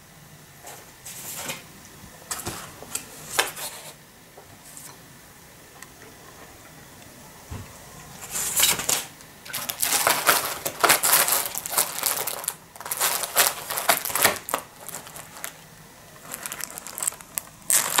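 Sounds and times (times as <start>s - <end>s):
cardboard box crackling: 9.6s - 15.6s, 16.2s - 18.0s.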